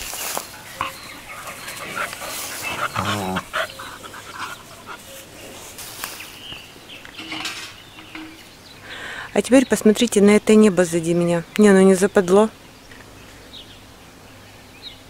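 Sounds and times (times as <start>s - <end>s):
dogs scuffling through grass: 0.0s - 7.0s
dogs panting: 0.4s - 6.0s
dog vocal sound: 0.7s - 5.3s.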